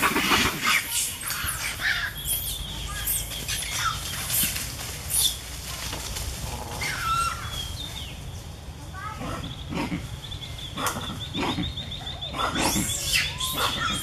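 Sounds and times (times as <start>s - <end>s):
high-pitched animal chirps: 12.0s - 14.0s.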